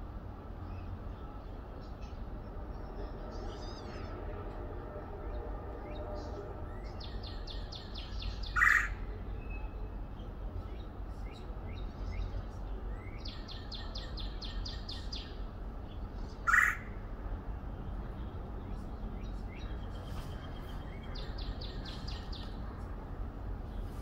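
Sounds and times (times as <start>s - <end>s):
loud bird calls: 6.9s - 9.0s, 16.4s - 16.9s.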